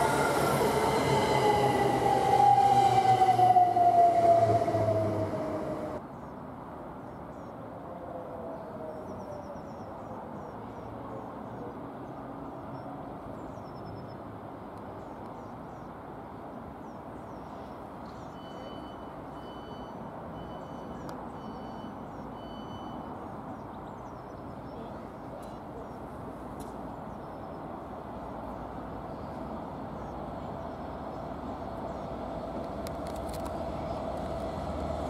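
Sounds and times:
distant locomotive rumble: 0.0s - 6.0s, 28.0s - 35.0s.

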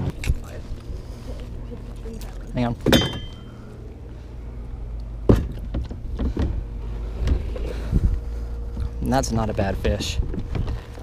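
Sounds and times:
knocks and bumps in a boat: 5.3s - 7.5s
wind rumble on microphone: 5.9s - 11.0s.

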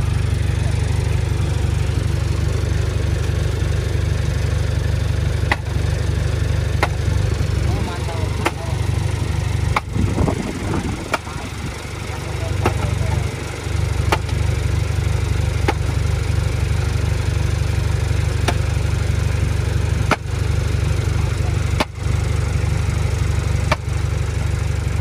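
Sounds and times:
bulldozer diesel engine rumbling: 0.0s - 25.0s.

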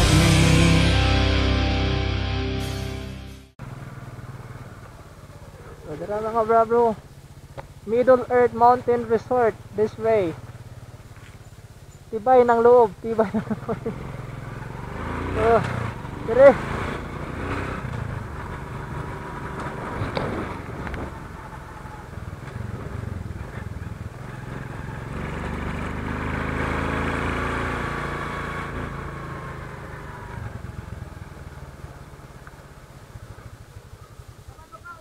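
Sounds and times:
motorcycle engine running: 3.6s - 35.0s.

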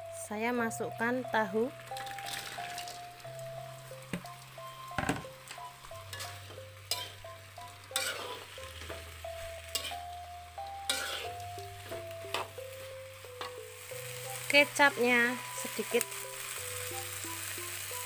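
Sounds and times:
light sizzle: 0.0s - 18.0s
plucked melody with bass line: 0.6s - 16.1s
spatula scraping a wok: 6.0s - 10.1s, 10.8s - 14.5s.

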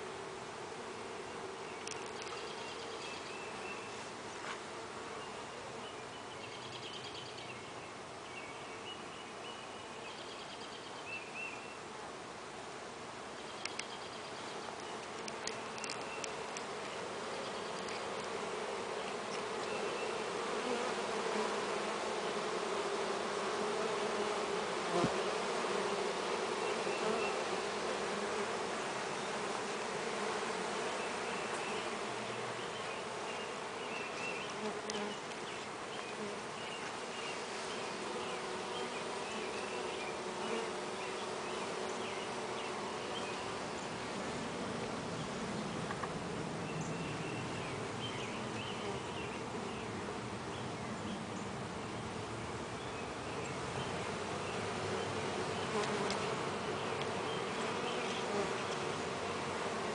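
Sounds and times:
honeybees buzzing: 0.0s - 7.1s, 13.6s - 59.9s.

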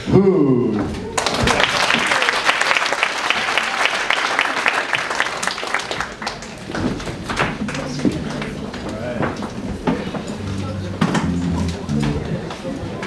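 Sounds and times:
audience applauding: 1.1s - 9.2s.

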